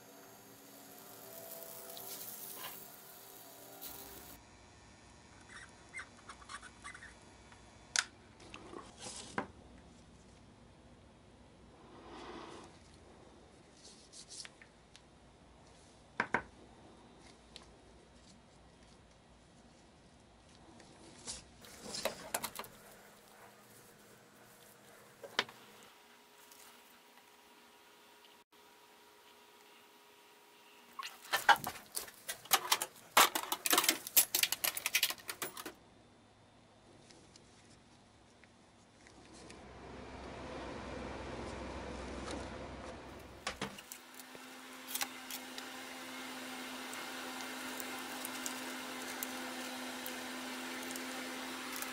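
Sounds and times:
gloved hands rubbing and scraping: 0:17.0 - 0:27.1.

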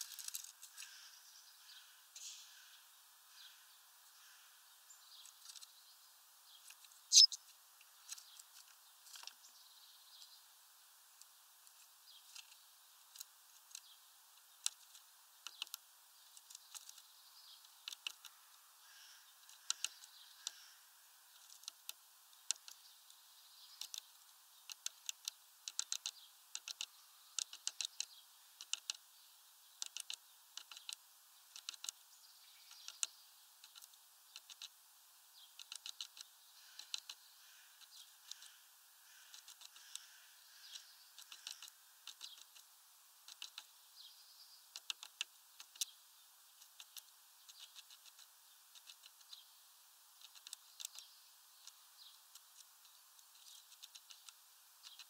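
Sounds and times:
bird pecking on wooden perch: 0:11.2 - 0:18.5, 0:19.4 - 0:20.7, 0:21.3 - 0:22.8, 0:23.8 - 0:29.0, 0:29.8 - 0:32.0, 0:32.7 - 0:34.8, 0:35.5 - 0:37.2, 0:37.8 - 0:43.7, 0:44.7 - 0:45.9, 0:46.6 - 0:49.3, 0:50.2 - 0:55.0.

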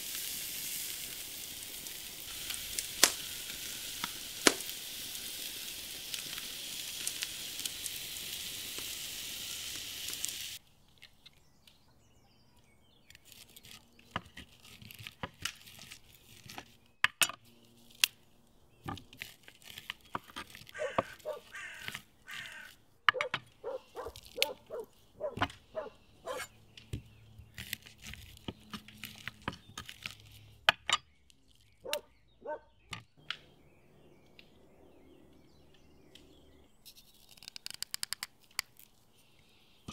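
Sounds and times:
meat sizzling on a grill: 0:00.0 - 0:10.6.

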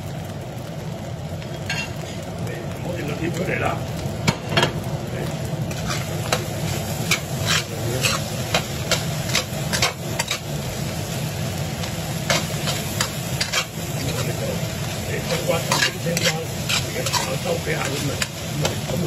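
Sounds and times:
rice sizzling in frying pan: 0:00.0 - 0:19.0
metal spoon scraping pan: 0:05.7 - 0:10.5, 0:12.3 - 0:14.4, 0:15.2 - 0:18.8.

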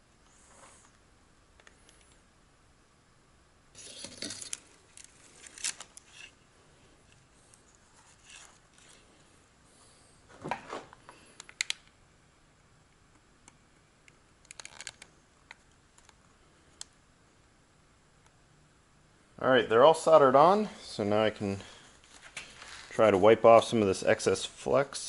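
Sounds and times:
faint rustles of hand work: 0:00.2 - 0:01.0, 0:03.8 - 0:11.4, 0:20.7 - 0:23.7
sharp clicks of wires: 0:11.4 - 0:12.0.

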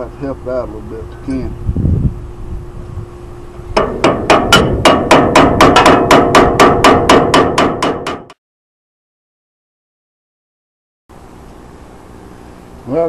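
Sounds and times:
rapid hammer taps on metal: 0:03.8 - 0:08.4.

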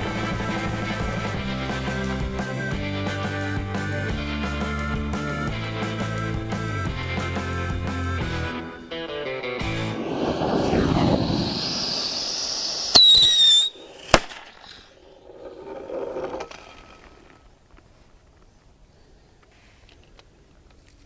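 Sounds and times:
firework rockets fizzing: 0:09.9 - 0:15.1
shrill whistle: 0:12.0 - 0:13.9.

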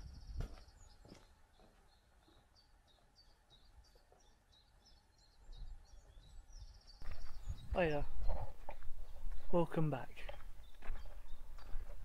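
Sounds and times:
small bird chirping: 0:00.0 - 0:09.6.

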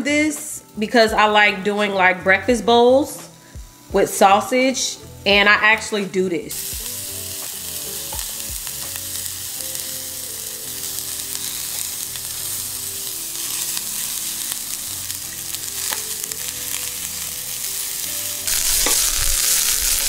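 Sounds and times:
meatballs sizzling in frying pan: 0:06.5 - 0:20.0.

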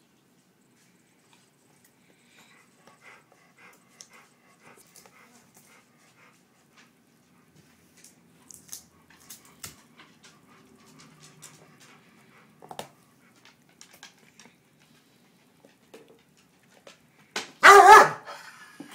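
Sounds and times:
dog breathing: 0:01.9 - 0:08.0, 0:09.0 - 0:15.8.

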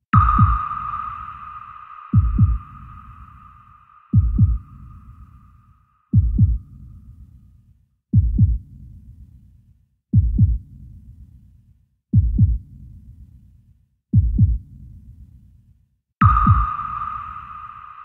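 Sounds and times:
low double thumps: 0:00.2 - 0:01.0, 0:02.1 - 0:03.5, 0:04.1 - 0:05.2, 0:16.2 - 0:17.0.

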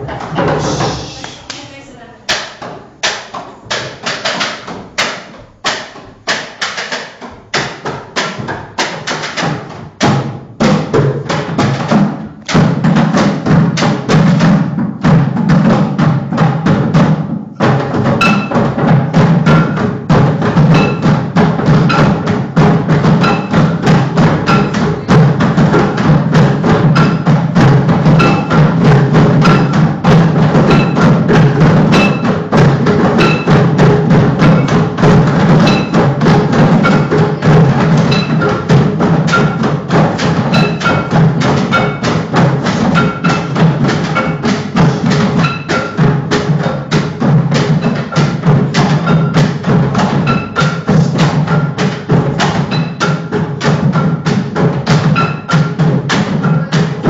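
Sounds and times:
hollow percussion knocks: 0:02.3 - 0:57.0.

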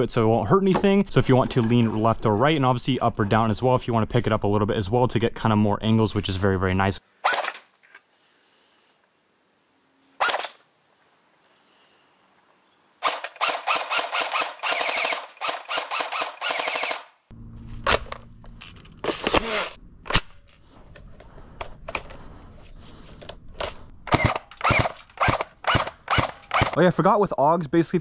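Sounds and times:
airsoft rifle firing: 0:07.2 - 0:07.7, 0:10.2 - 0:10.6, 0:13.0 - 0:17.1, 0:24.1 - 0:26.8.

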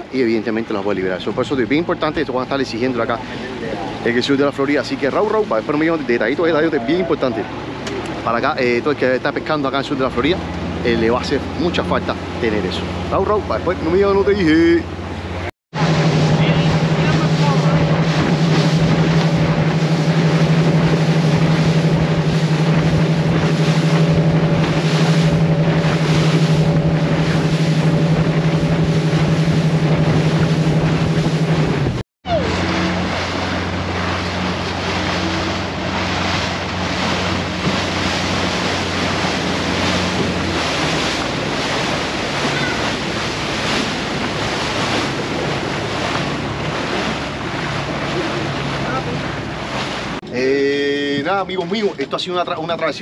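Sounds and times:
boat motor running: 0:00.0 - 0:53.0
rushing water: 0:00.0 - 0:53.0
wind buffeting microphone: 0:15.0 - 0:50.2.

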